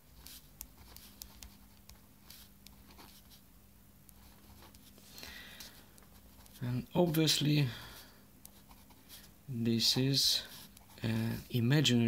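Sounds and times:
ballpoint pen scratching on paper: 0.0 - 3.4, 4.1 - 4.9, 8.4 - 11.3.

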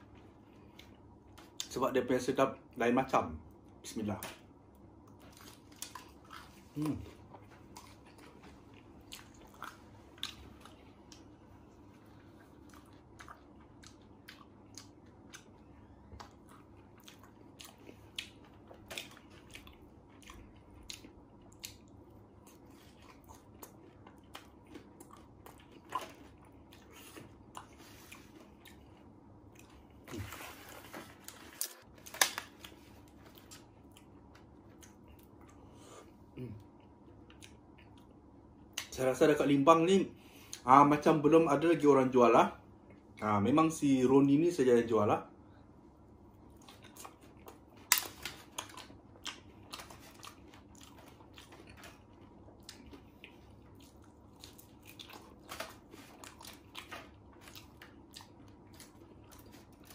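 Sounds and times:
person chewing crunchy food: 4.9 - 38.8, 46.4 - 59.9.

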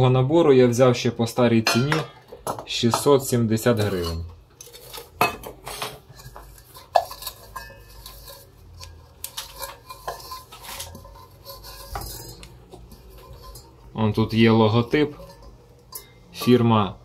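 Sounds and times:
metal cookware clinks and knocks: 1.6 - 3.1, 5.0 - 16.7.

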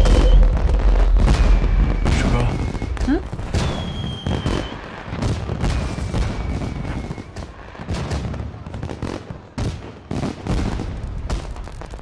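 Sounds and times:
firework shell whistle: 0.0 - 5.0, 5.7 - 7.4
fireworks bangs and crackling: 0.0 - 12.0.

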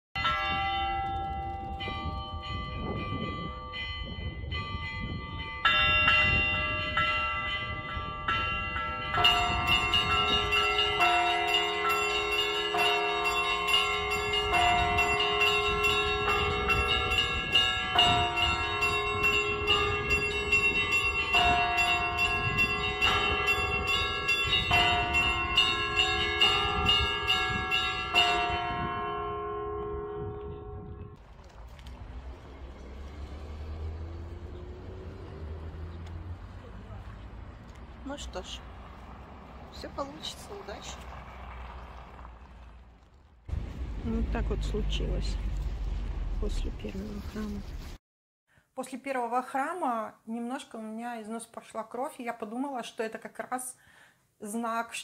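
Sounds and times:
church bells pealing: 0.2 - 31.2
low rumble: 40.7 - 48.0.

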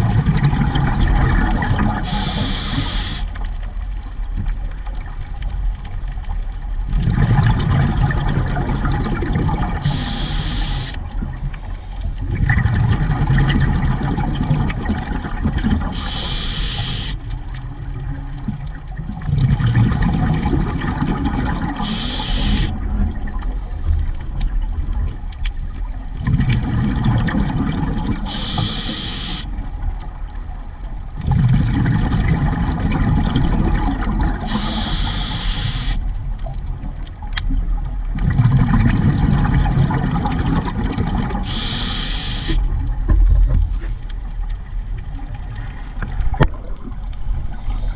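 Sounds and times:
bubbling exhale: 1.9 - 3.3, 9.7 - 11.0, 15.9 - 17.2, 21.7 - 22.8, 28.2 - 29.5, 34.4 - 36.0, 41.4 - 42.6
regulator inhale hiss: 2.0 - 3.4, 9.8 - 11.0, 15.9 - 17.2, 21.8 - 22.8, 28.2 - 29.5, 34.5 - 36.0, 41.4 - 42.6.

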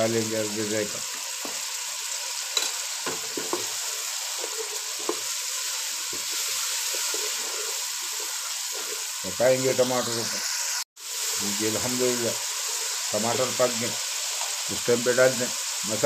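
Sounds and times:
food sizzling in a pot: 0.0 - 16.0
wooden spatula scraping a pot: 3.1 - 9.2.

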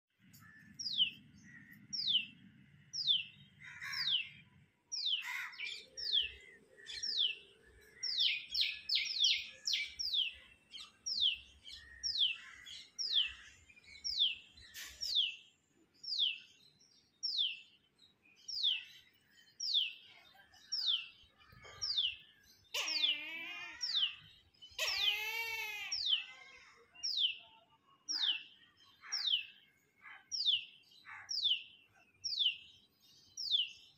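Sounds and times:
bird chirping: 0.2 - 33.9
wavering bird calls: 3.0 - 15.3, 20.8 - 27.5.

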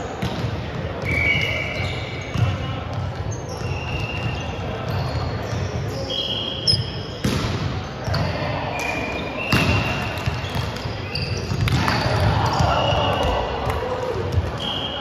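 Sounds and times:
murmur of voices: 0.0 - 15.0
sneakers squeaking on floor: 0.1 - 13.6.

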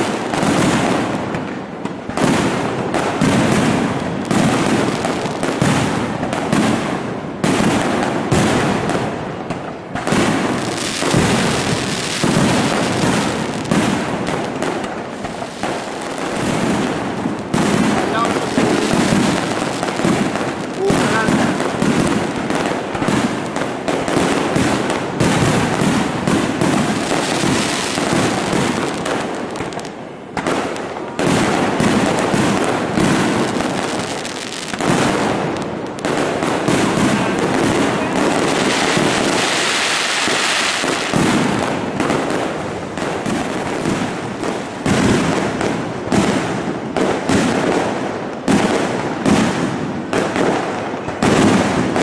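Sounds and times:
fireworks bursting: 0.0 - 52.0.

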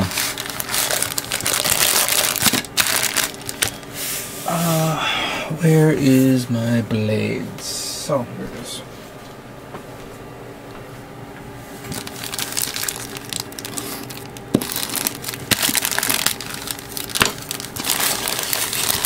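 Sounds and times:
plastic bag crinkling: 0.0 - 3.9, 11.8 - 19.0.

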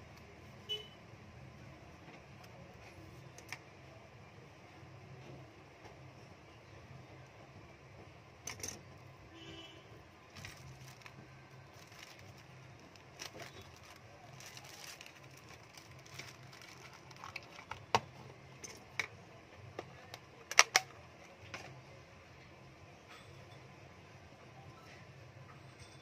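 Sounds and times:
plastic bag crinkling: 10.3 - 17.9.

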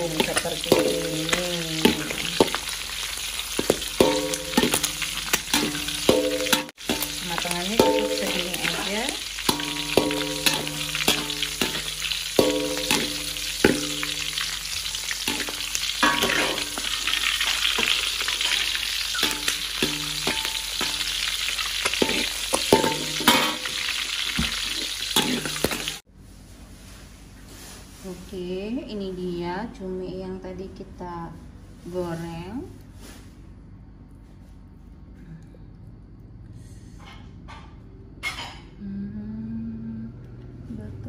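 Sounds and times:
metal spatula scraping wok: 0.0 - 26.0
squid sizzling in oil: 0.0 - 26.0.

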